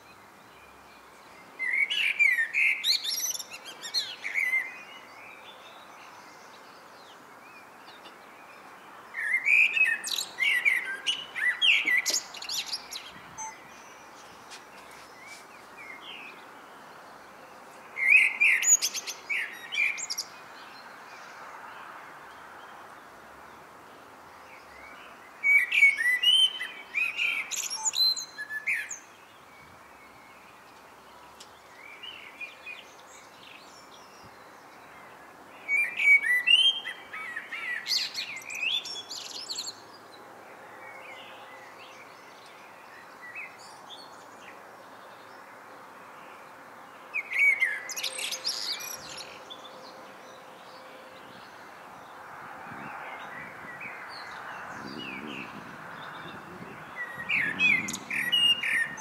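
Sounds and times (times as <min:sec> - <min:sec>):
blackbird singing: 0:01.6 - 0:08.3, 0:09.1 - 0:16.5, 0:17.9 - 0:21.3, 0:24.6 - 0:30.5, 0:35.6 - 0:40.0, 0:47.0 - 0:51.6, 0:52.9 - 0:59.0.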